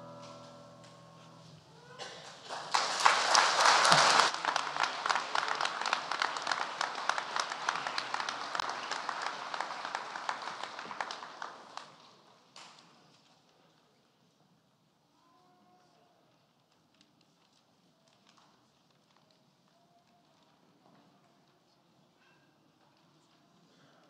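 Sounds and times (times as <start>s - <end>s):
audience applauding: 2.0s - 12.2s.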